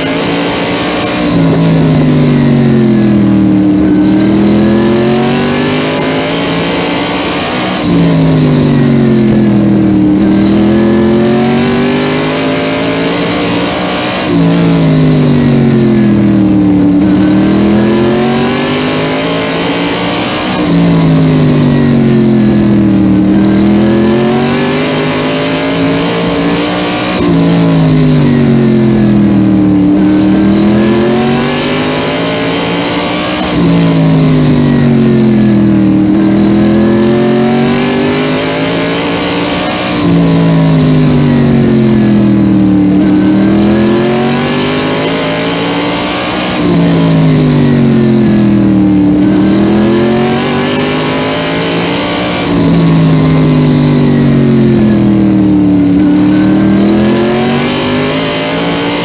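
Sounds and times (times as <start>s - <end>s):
race car engine: 0.0s - 59.0s.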